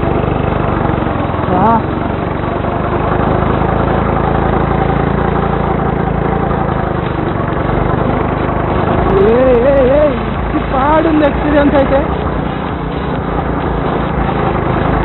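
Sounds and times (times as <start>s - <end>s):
go-kart engine running: 0.0s - 15.0s.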